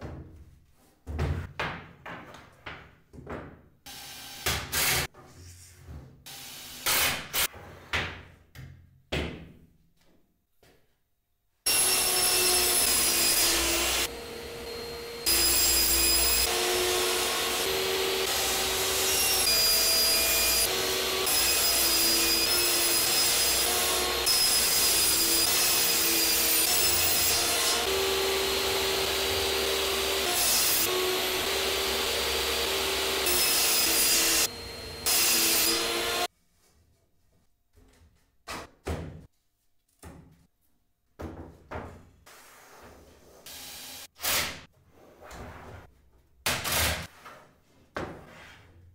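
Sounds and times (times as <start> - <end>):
table saw cutting plywood: 11.7 - 36.3, 43.4 - 44.7.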